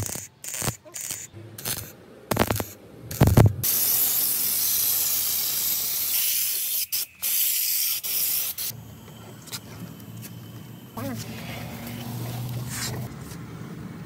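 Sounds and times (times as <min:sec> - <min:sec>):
spray gun hissing: 0:00.0 - 0:08.8.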